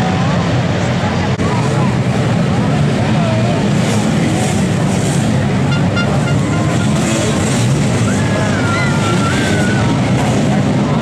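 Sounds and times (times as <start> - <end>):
crowd chatter: 0.0 - 11.0
motocross motorcycle engines droning: 0.0 - 11.0.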